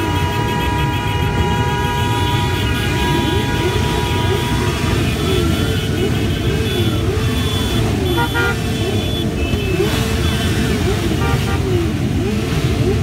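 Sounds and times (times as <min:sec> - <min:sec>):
motorcycle horn toots: 0:00.0 - 0:11.8
motorcycle engines revving: 0:00.0 - 0:13.0.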